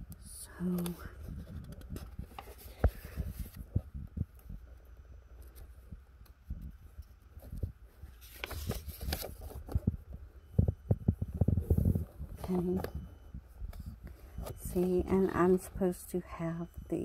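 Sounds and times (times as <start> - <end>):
paper pages rustling: 0.6 - 4.5, 7.0 - 13.0.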